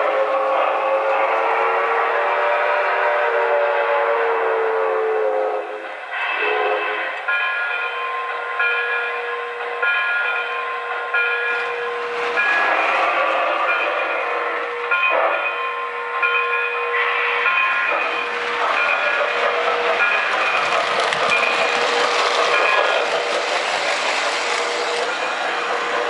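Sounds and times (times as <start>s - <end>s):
model train wheels clicking on rails: 16.2s - 26.0s.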